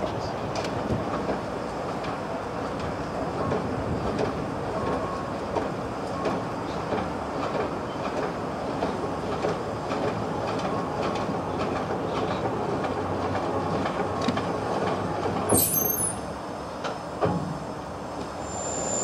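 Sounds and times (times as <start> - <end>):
high squeal: 18.4 - 19.0.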